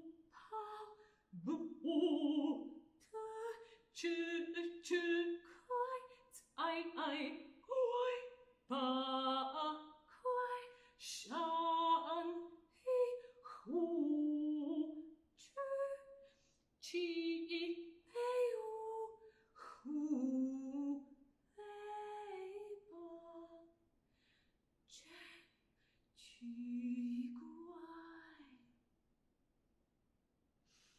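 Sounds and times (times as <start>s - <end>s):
person singing unaccompanied: 0.0s - 6.0s.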